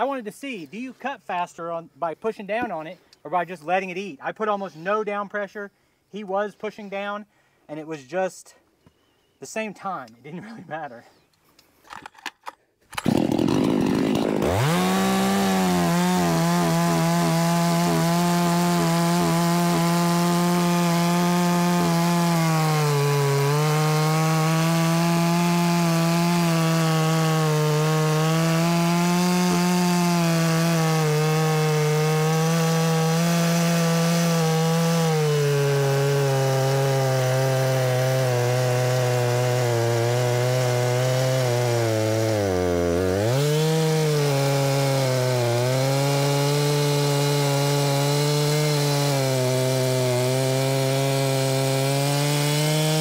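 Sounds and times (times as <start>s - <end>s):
chainsaw cutting log: 12.0s - 53.0s.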